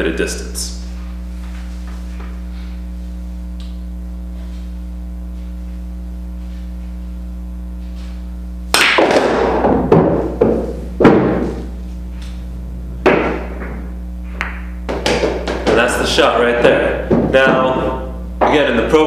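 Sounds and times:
electrical mains hum: 0.0s - 19.0s
pool balls clacking: 8.7s - 11.7s, 13.0s - 16.0s, 17.0s - 18.7s.

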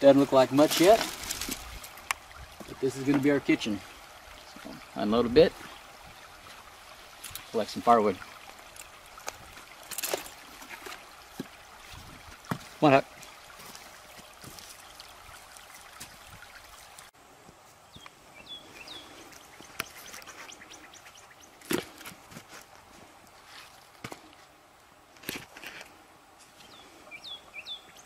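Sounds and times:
creek water trickling: 0.0s - 28.0s
small birds chirping: 17.8s - 22.0s, 26.5s - 28.0s.

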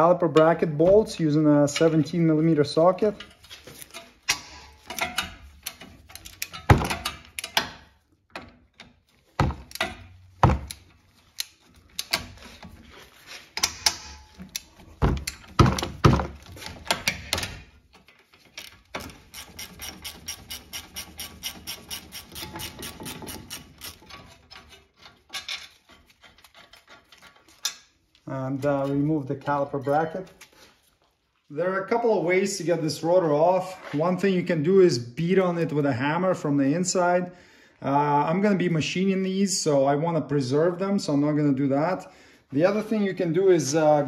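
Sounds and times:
rapid ratchet clicks: 18.9s - 24.0s.

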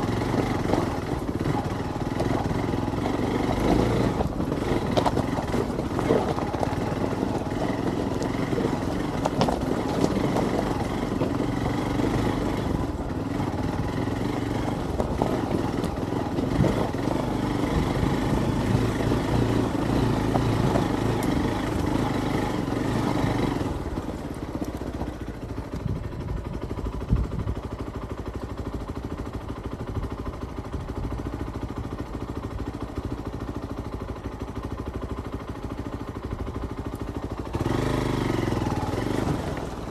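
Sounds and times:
motorcycle engine under throttle: 0.0s - 39.9s.

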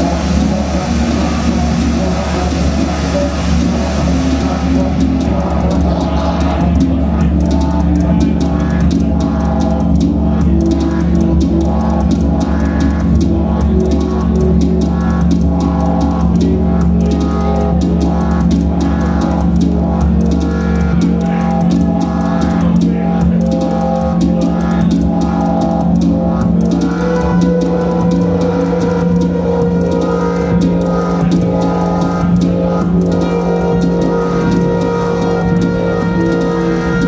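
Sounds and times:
hi-hat ticks and drums: 0.0s - 37.0s
low electronic drone: 0.0s - 37.0s.

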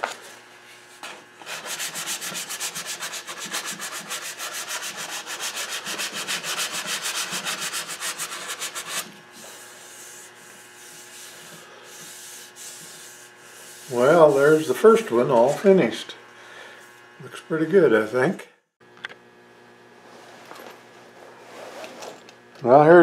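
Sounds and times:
sandpaper sanding wood: 0.9s - 15.8s, 17.7s - 18.4s.

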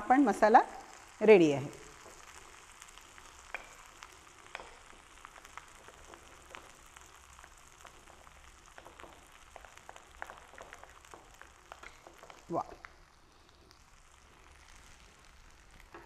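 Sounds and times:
food sizzling in oil: 0.0s - 16.0s.

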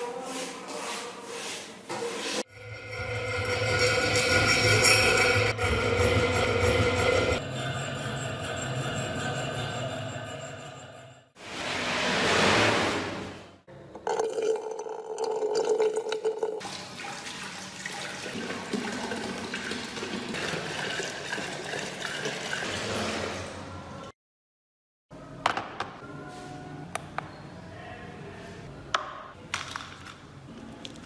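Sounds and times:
water pouring into a tank: 14.0s - 23.4s.

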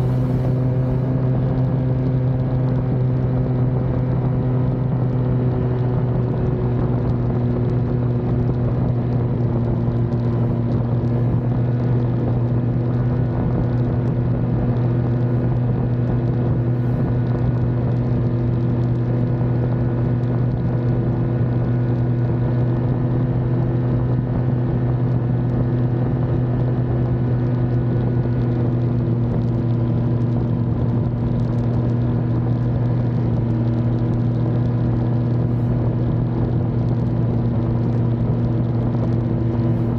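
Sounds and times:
snowmobile engine humming: 0.0s - 2.7s.

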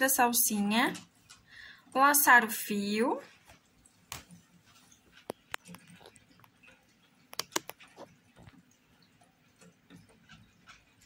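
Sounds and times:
small clicks and ticks: 0.4s - 2.0s, 3.2s - 11.0s
crochet hook rustling yarn: 3.4s - 8.6s.

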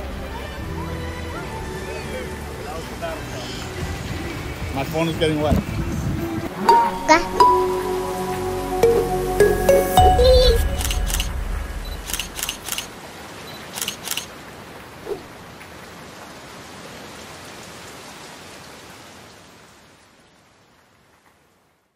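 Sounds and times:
sharp clicks: 10.7s - 12.9s, 13.7s - 14.3s.

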